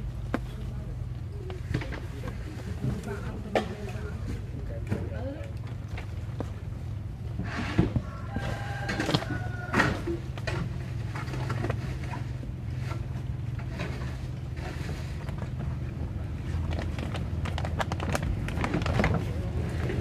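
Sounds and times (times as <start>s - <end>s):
knocks and creaks of monkeys climbing: 7.3s - 20.0s.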